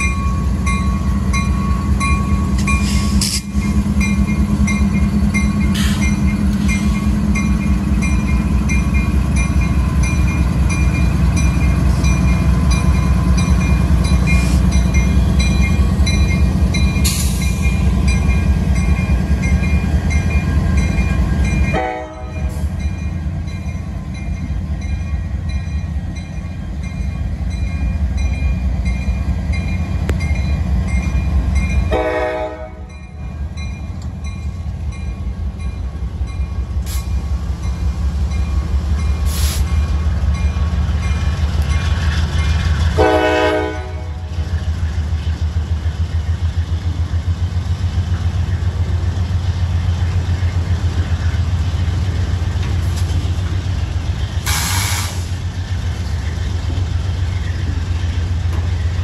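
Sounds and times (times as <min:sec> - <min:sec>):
diesel locomotives rumbling: 0:00.0 - 0:59.0
train cars rolling: 0:00.0 - 0:59.0
train horn: 0:21.7 - 0:22.6, 0:31.9 - 0:32.9, 0:43.0 - 0:44.4.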